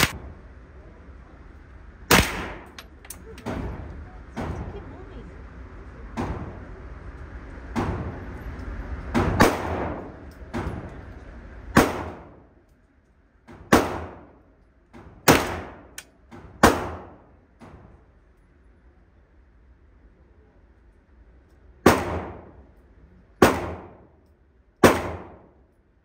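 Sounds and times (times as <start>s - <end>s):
gunshots echoing indoors: 2.1s - 3.8s, 9.2s - 10.9s, 11.7s - 12.5s, 13.5s - 14.4s, 15.2s - 17.3s, 21.8s - 22.8s, 23.4s - 24.2s, 24.8s - 25.7s.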